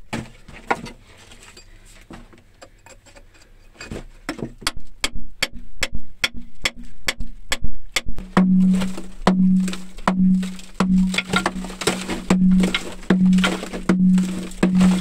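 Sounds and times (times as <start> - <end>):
hammer striking steel chisel: 4.6 - 15.0.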